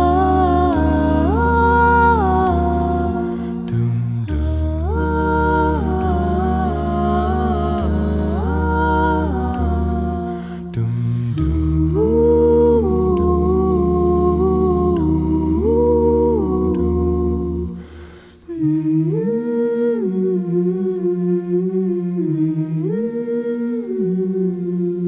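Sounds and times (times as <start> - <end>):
deep bass voice: 0.0 - 17.7
vocal ensemble humming chords: 0.0 - 25.0.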